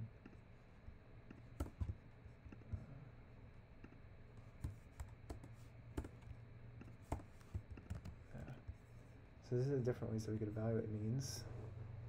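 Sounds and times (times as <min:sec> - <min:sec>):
faint low hum: 0:00.0 - 0:12.0
computer keyboard keystrokes: 0:01.6 - 0:02.6, 0:04.6 - 0:06.3, 0:07.1 - 0:08.2.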